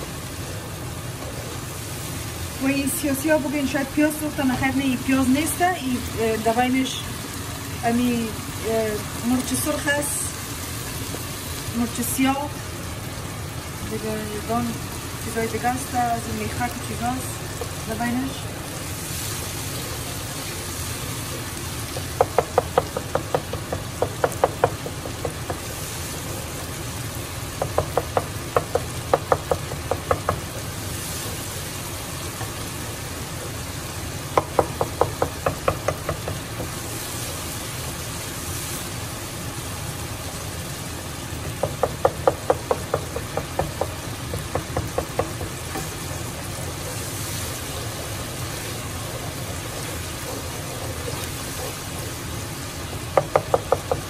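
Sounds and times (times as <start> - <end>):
wooden spoon tapping a pot: 21.9 - 25.7, 27.6 - 30.6, 34.4 - 36.8, 41.4 - 46.7, 47.8 - 52.1, 53.1 - 54.0.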